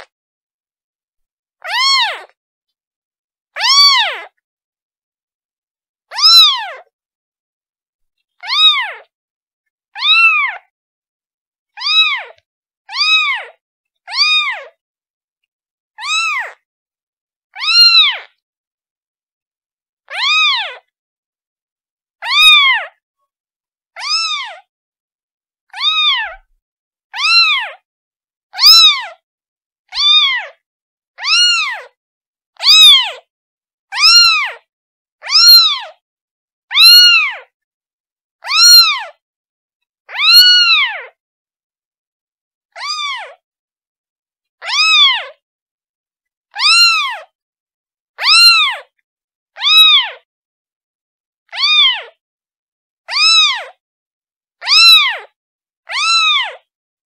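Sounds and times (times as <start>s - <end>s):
kitten meowing: 1.6s - 2.4s, 3.6s - 4.3s, 6.1s - 6.9s, 8.4s - 9.1s, 10.0s - 10.7s, 11.8s - 14.8s, 16.0s - 16.6s, 17.6s - 18.3s, 20.1s - 20.8s, 22.2s - 23.0s, 24.0s - 24.7s, 25.7s - 26.5s, 27.2s - 27.8s, 28.6s - 29.2s, 29.9s - 30.6s, 31.2s - 32.0s, 32.6s - 33.2s, 33.9s - 36.0s, 36.7s - 37.5s, 38.4s - 39.2s, 40.1s - 41.2s, 42.7s - 43.4s, 44.6s - 45.4s, 46.5s - 47.3s, 48.2s - 48.9s, 49.6s - 50.2s, 51.5s - 52.2s, 53.1s - 53.8s, 54.6s - 56.6s.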